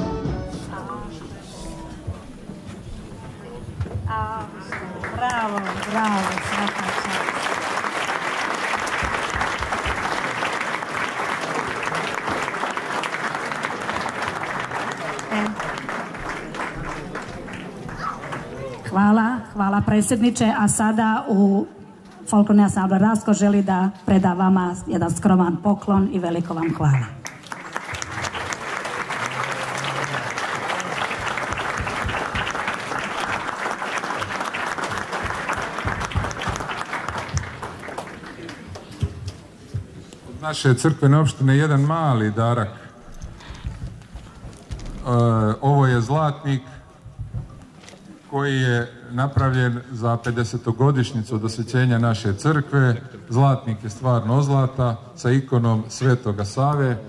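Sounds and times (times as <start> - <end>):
audience applause: 4.5 - 19.0, 26.6 - 39.6.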